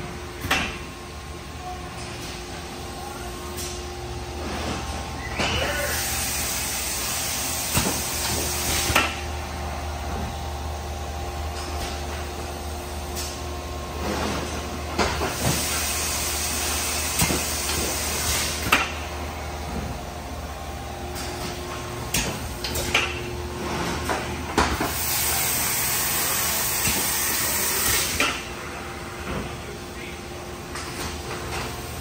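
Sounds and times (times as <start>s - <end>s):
industrial machine humming: 0.0s - 32.0s
loud hiss: 24.9s - 28.2s.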